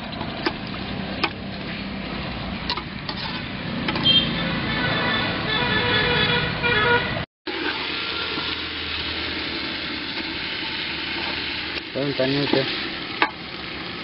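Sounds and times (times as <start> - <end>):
meat sizzling in a pot: 7.5 - 14.0.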